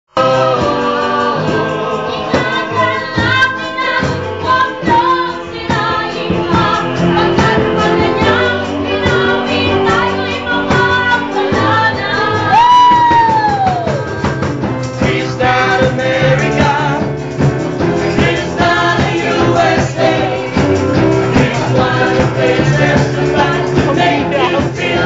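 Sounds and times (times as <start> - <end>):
music with steady beat: 0.1 - 25.0
people singing together: 0.1 - 25.0
woman singing: 2.1 - 14.6.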